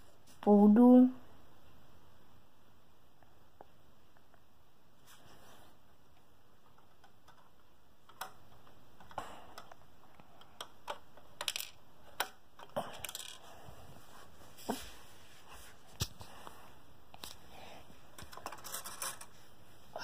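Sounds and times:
plastic pieces clicking: 6.7s - 13.4s.

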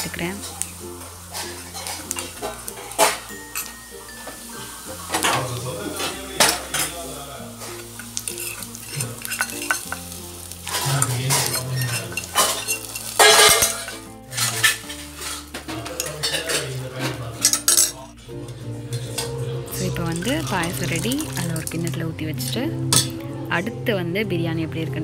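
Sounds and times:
hot ghee sizzling: 0.0s - 25.0s
steel ladle clinking in a pot: 0.4s - 4.4s, 7.6s - 18.0s, 22.9s - 23.2s.

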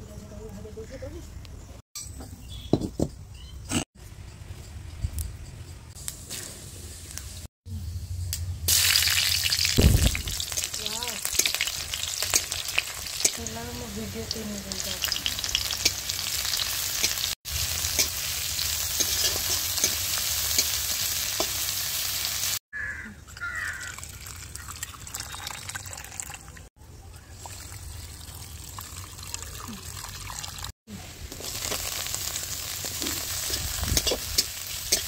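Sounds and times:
oil sizzling and crackling: 8.7s - 22.6s, 27.4s - 35.0s
spatula stirring: 18.9s - 20.8s.

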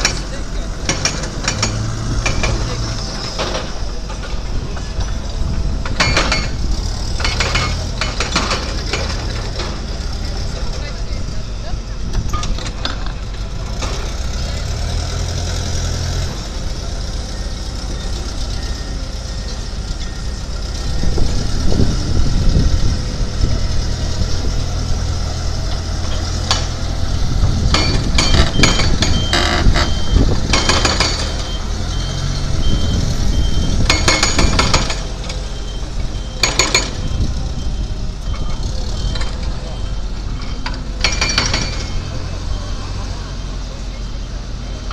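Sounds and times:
metallic clanks and knocks: 0.0s - 5.2s, 5.8s - 10.0s, 12.1s - 14.1s, 27.4s - 31.6s, 33.8s - 35.4s, 36.4s - 37.2s, 40.3s - 42.2s
diesel forklift engine: 0.0s - 44.9s
reversing beep: 17.2s - 21.0s, 27.8s - 43.4s.

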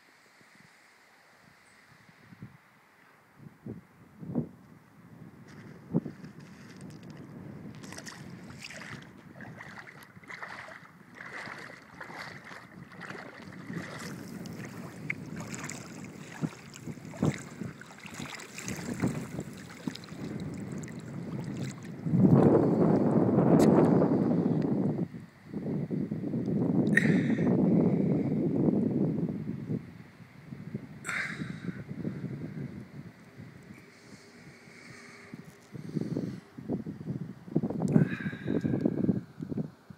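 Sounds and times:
wind on microphone: 1.4s - 2.7s, 3.3s - 39.9s
river water sloshing and splashing: 6.5s - 22.5s.

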